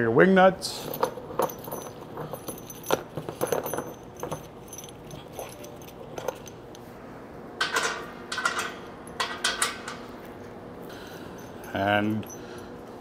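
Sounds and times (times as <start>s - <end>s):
metal wing nuts jingling: 0.7s - 6.8s, 7.6s - 10.1s.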